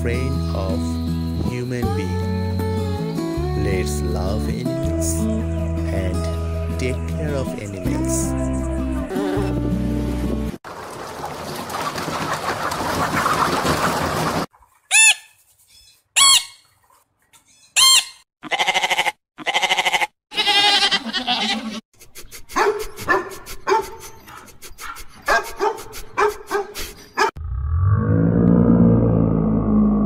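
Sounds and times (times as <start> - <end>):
cockatoo screeching: 14.9 - 16.6, 17.7 - 21.8
dog barking rapidly: 22.5 - 24.0, 24.8 - 27.3
low drawn-out roar: 27.4 - 30.0.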